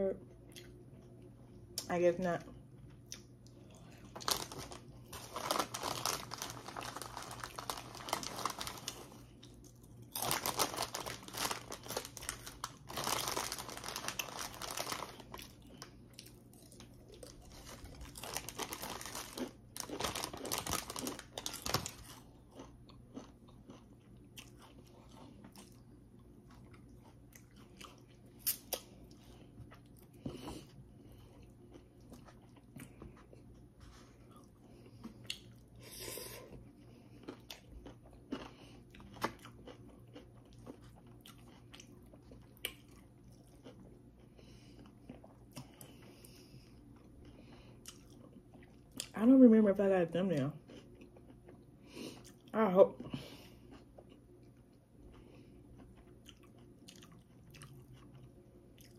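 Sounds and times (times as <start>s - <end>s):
chewing crunchy food: 2.6s - 49.2s, 50.5s - 52.6s, 53.2s - 58.9s.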